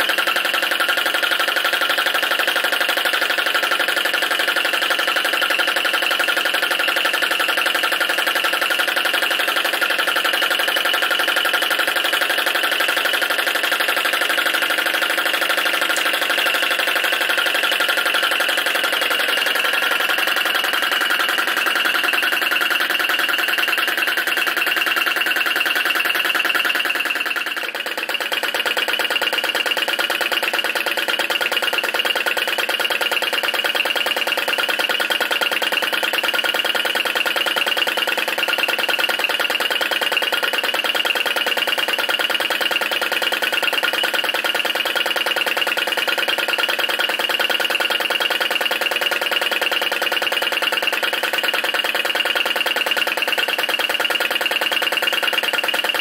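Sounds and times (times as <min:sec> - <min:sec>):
small engine clattering: 0:00.0 - 0:56.0.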